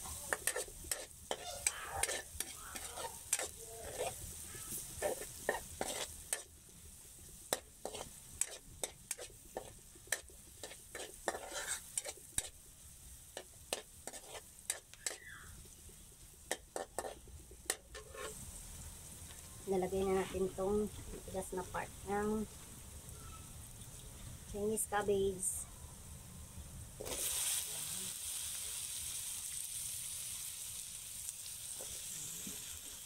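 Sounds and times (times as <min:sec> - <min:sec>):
onions sizzling in oil: 0:00.0 - 0:33.0
metal spatula scraping a wok: 0:00.1 - 0:06.5, 0:07.5 - 0:12.6, 0:13.4 - 0:15.3, 0:16.5 - 0:18.4, 0:27.0 - 0:27.6.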